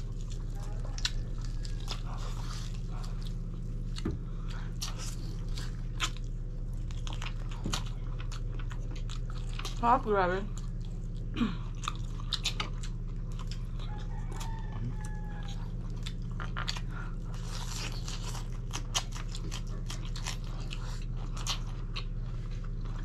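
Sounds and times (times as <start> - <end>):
chewing with crunches: 0.0 - 23.0
steady low hum: 0.0 - 23.0.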